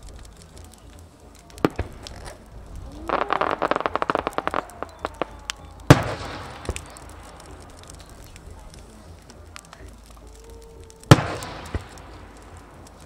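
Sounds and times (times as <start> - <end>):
firework bangs: 0.0 - 13.0
firework crackling: 0.0 - 13.0.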